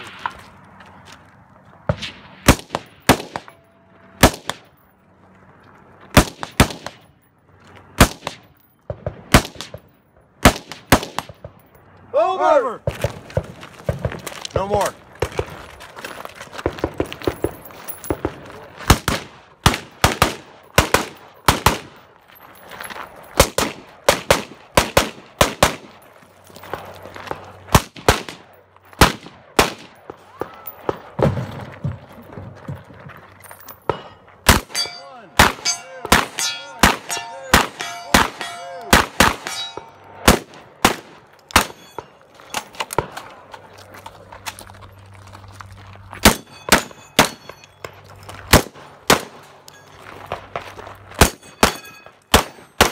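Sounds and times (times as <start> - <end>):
gunshots: 1.9 - 3.6, 4.2 - 4.7, 6.1 - 7.0, 8.0 - 11.6, 18.1 - 22.0, 23.4 - 26.0, 27.7 - 31.6, 33.9 - 43.2, 48.5 - 49.4, 51.2 - 52.9
steel targets ringing: 33.8 - 40.1, 41.6 - 42.7, 46.2 - 48.0, 51.2 - 52.9.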